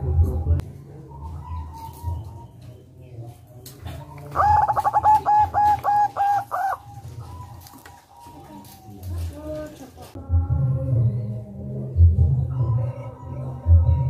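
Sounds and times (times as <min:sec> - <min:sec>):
dove cooing: 0:00.0 - 0:10.2.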